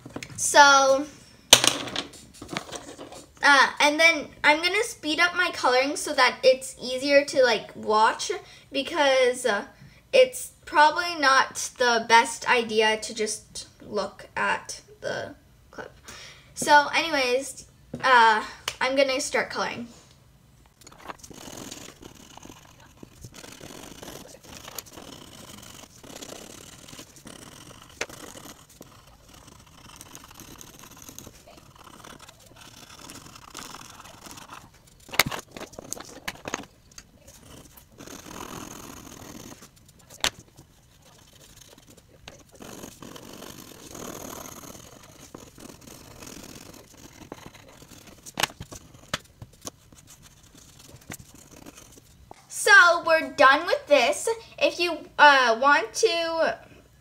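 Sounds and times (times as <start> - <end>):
pencil scratching on paper: 2.1 - 3.4, 20.9 - 52.3.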